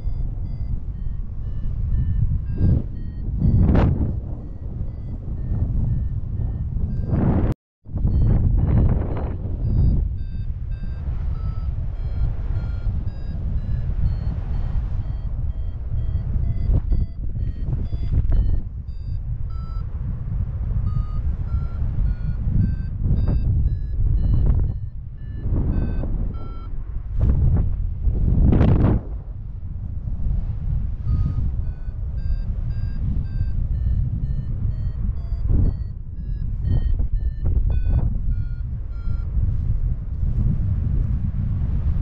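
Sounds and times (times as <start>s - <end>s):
short electronic beeps tune: 0.0s - 19.9s, 20.8s - 26.7s, 31.1s - 39.4s
steady low rumble: 0.0s - 42.0s.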